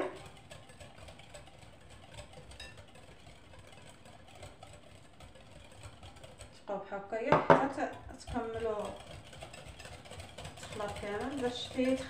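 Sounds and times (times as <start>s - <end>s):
low steady hum: 0.0s - 12.0s
hand whisk clicking in bowl: 7.3s - 12.0s.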